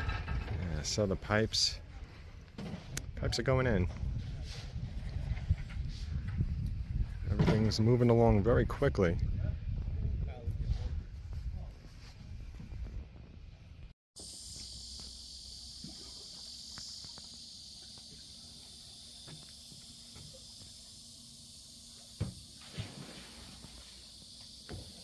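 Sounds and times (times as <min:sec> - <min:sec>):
insects droning: 0:14.2 - 0:25.0.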